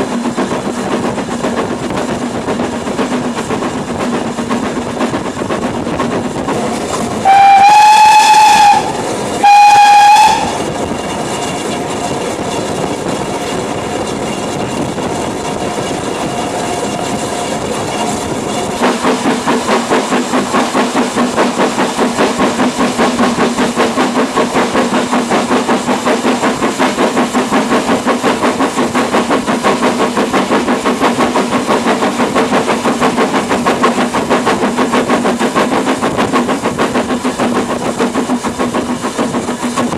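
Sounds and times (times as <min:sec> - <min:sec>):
locomotive exhaust beat: 0:00.0 - 0:39.9
moving train running noise: 0:00.0 - 0:39.9
steam locomotive whistle blasts: 0:07.2 - 0:10.7.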